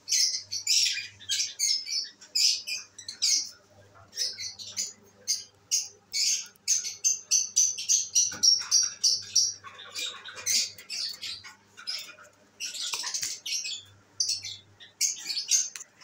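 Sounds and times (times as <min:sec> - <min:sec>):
lovebirds chirping and squawking: 0:00.0 - 0:16.0.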